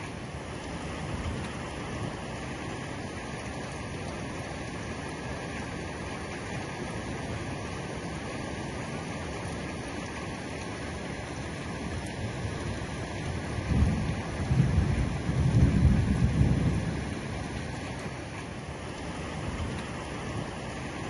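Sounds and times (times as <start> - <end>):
heavy rain falling: 0.0 - 21.0
thunder rumble: 12.4 - 18.1.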